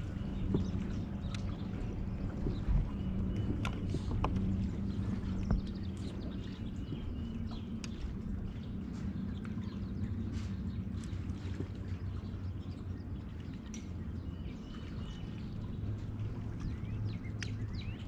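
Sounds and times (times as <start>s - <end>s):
small birds chirping: 16.6s - 18.0s.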